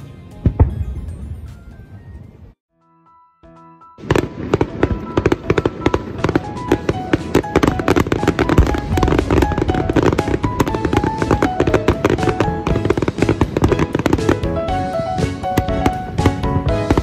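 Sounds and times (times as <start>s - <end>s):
fireworks crackling and popping: 4.0s - 17.0s
music with stepping melody: 5.2s - 17.0s.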